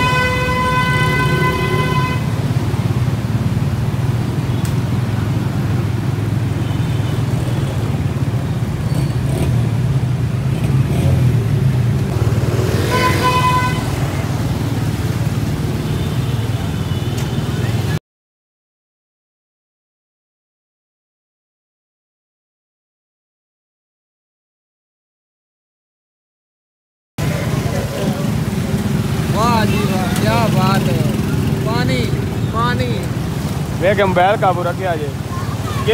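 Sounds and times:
vehicle horn: 0:00.0 - 0:02.4, 0:12.8 - 0:14.1.

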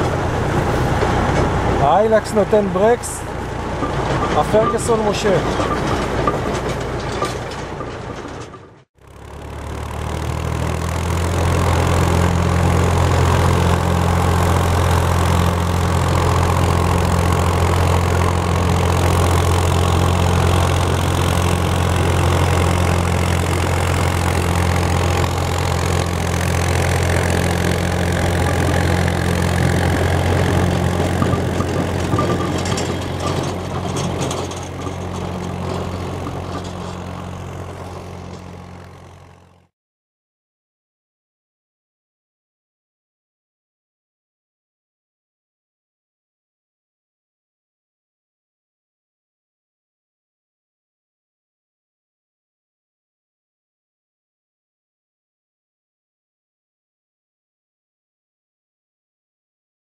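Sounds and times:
vehicle engine running at low revs: 0:08.6 - 0:39.7.

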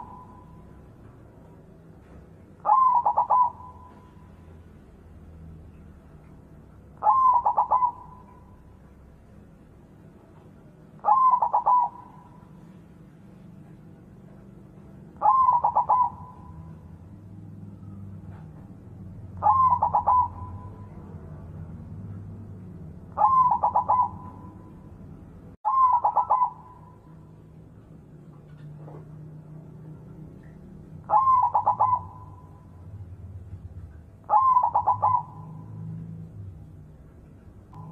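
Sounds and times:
dove cooing: 0:02.6 - 0:04.3, 0:07.0 - 0:08.6, 0:11.0 - 0:12.7, 0:15.2 - 0:17.0, 0:19.4 - 0:21.2, 0:23.1 - 0:24.8, 0:25.7 - 0:27.0, 0:31.0 - 0:32.8, 0:34.2 - 0:36.0.

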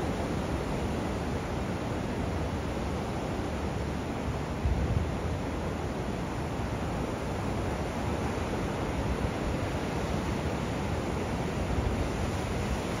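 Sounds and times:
surf washing onto beach: 0:00.0 - 0:13.0
wind rumbling on microphone: 0:04.5 - 0:05.8.

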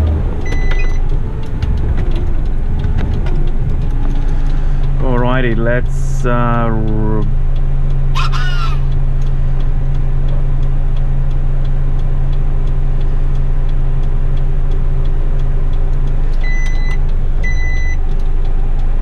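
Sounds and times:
diesel engine idling: 0:00.0 - 0:19.0
short electronic beeps: 0:00.5 - 0:01.0, 0:16.4 - 0:18.0.

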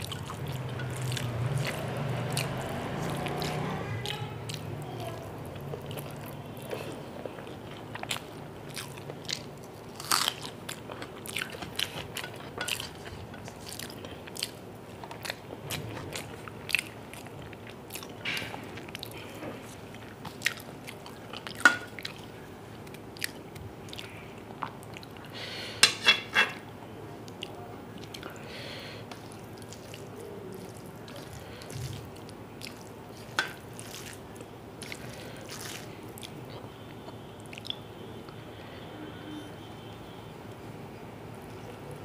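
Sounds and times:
wet chewing and lip smacks: 0:05.6 - 0:25.3, 0:29.1 - 0:38.4.

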